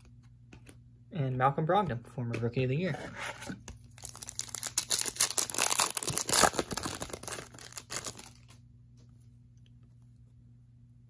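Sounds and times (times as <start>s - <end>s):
foil wrapper tearing and crinkling: 4.0s - 8.6s.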